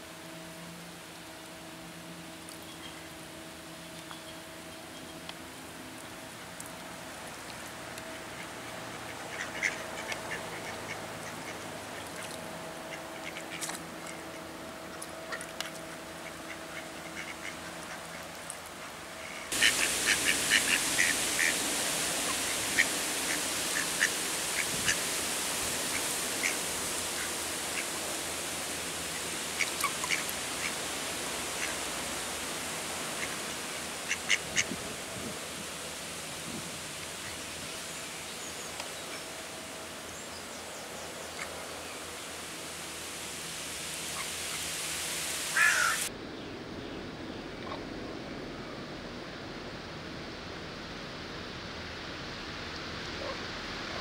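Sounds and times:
faint steady hum: 0.0 - 54.0
loud steady rush: 5.2 - 54.0
ducks quacking: 8.3 - 14.4, 15.3 - 18.2, 19.3 - 21.6, 34.0 - 34.8, 45.6 - 46.0.

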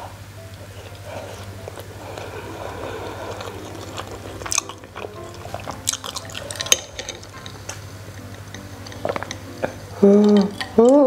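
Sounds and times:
light background music: 0.0 - 11.0
close-miked chewing: 0.5 - 11.0.

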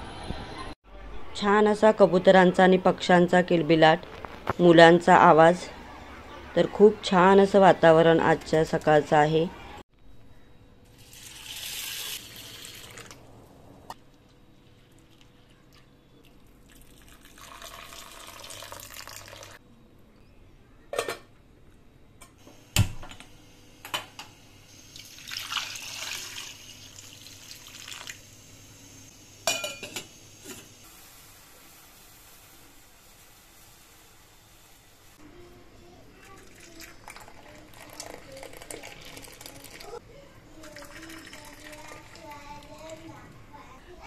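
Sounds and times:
water running: 14.8 - 19.6, 24.7 - 30.6, 36.2 - 40.0, 40.6 - 43.1
pots and lids clinking: 20.9 - 21.3, 29.4 - 30.8.

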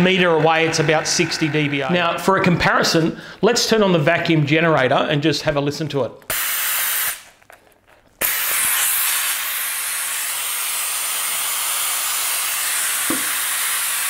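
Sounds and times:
loud compressed air hiss: 6.3 - 7.3, 8.2 - 14.0.

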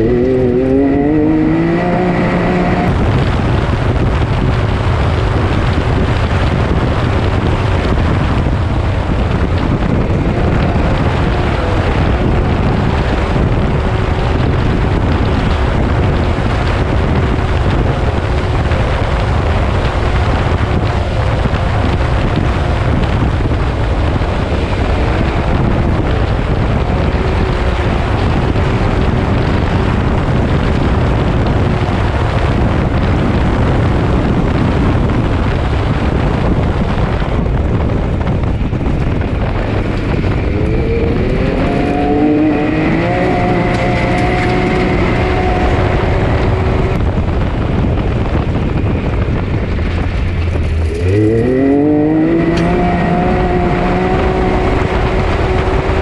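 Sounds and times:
off-road vehicle engine revving: 0.0 - 3.3, 9.4 - 30.7, 39.2 - 47.7, 50.5 - 56.0
dense rushing rumble: 0.0 - 56.0.

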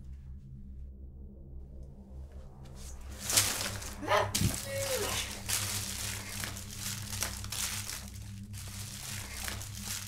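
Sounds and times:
plastic candy wrappers crinkling: 3.2 - 10.0.

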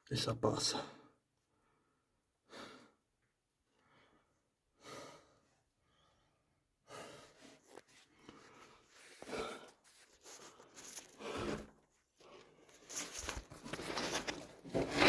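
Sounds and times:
person breathing hard: 1.5 - 3.1, 3.7 - 12.8.

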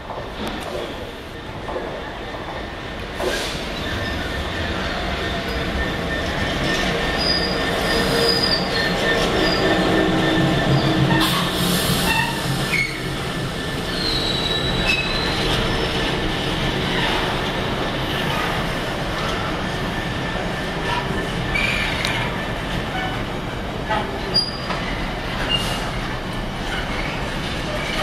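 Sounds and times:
train wheels rumbling on rails: 0.0 - 28.0
diesel locomotive passing: 2.6 - 24.3
high wheel squeals: 5.4 - 13.1, 13.9 - 16.1.

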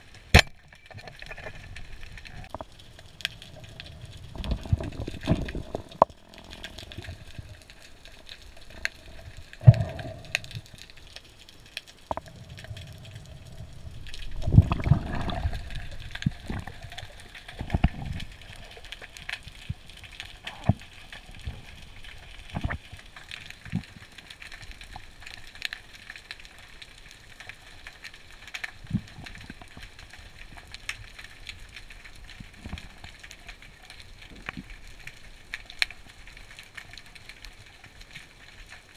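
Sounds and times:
sharp clicks and knocks: 0.3 - 1.5
rush of water: 12.0 - 24.4.

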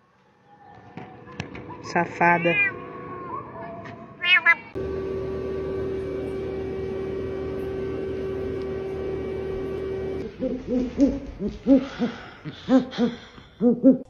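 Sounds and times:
steady held tone: 4.7 - 11.8
owl hooting: 10.2 - 14.0.

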